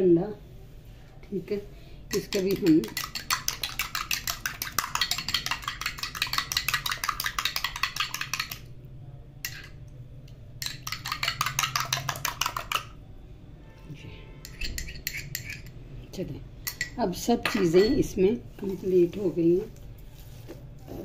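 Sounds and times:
utensil beating egg in bowl: 2.1 - 8.7, 10.6 - 13.0, 14.5 - 15.7.

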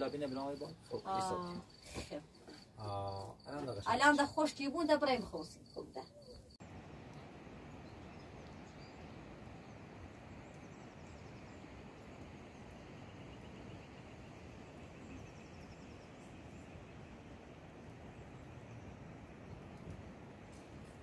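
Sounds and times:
outdoor background noise: 0.0 - 21.0
faint high chirping: 5.1 - 19.9.

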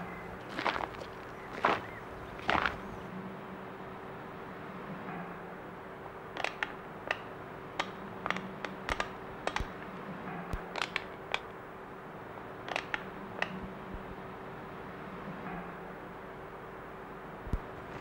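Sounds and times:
steady low hum: 0.0 - 18.0
small sharp clicks: 6.4 - 9.9, 10.5 - 11.6, 12.7 - 13.6.

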